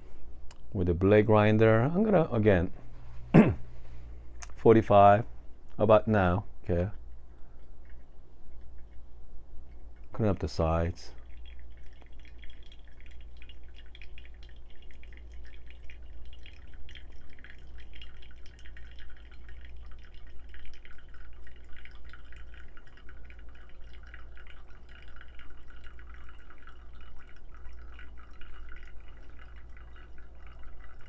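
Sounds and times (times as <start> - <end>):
steady low hum: 0.0 - 31.0
water pouring onto coffee grounds: 10.0 - 31.0.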